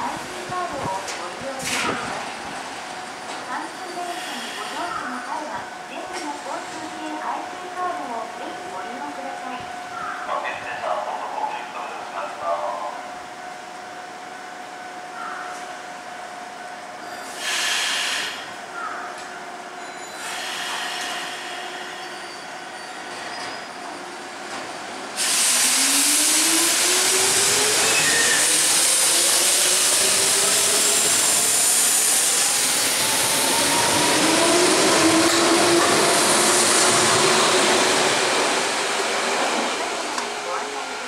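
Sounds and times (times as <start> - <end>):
train running noise rush: 0.0 - 41.0.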